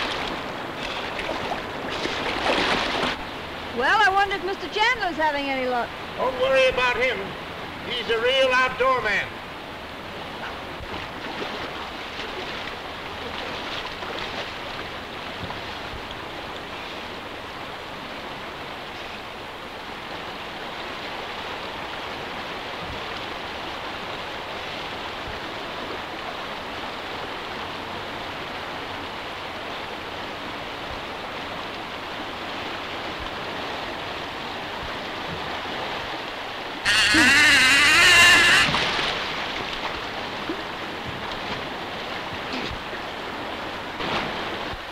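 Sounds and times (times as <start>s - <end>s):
loud splash: 0.0s - 3.2s, 36.8s - 39.8s
river water rushing: 0.0s - 44.9s
man crying out: 36.9s - 38.7s.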